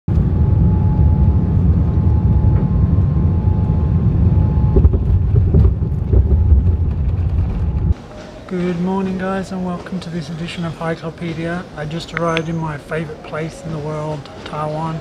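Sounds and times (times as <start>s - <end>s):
low rumble of engines and wheels: 0.1s - 15.0s
thin steady whine: 0.1s - 15.0s
bumps: 4.6s - 8.0s.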